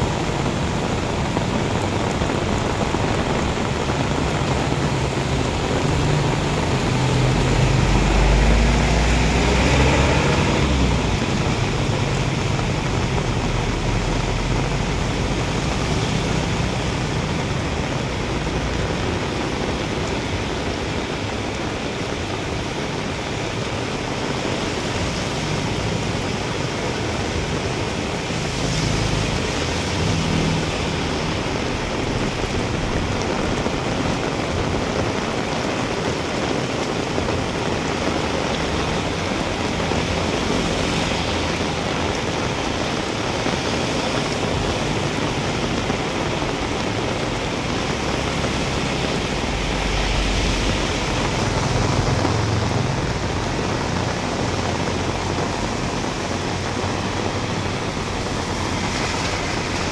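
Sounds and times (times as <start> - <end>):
heavy rain on pavement: 0.0 - 59.9
runoff water: 0.0 - 59.9
vehicle passing by: 4.6 - 17.3, 24.3 - 33.2, 38.1 - 43.0, 46.5 - 59.9.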